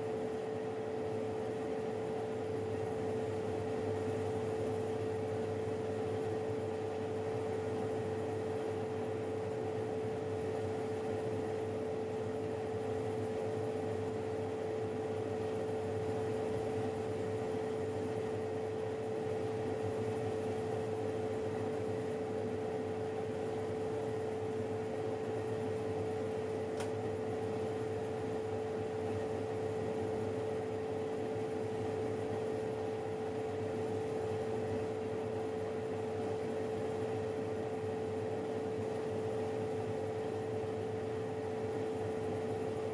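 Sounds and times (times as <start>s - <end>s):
oven hum with fan whoosh: 0.0s - 42.9s.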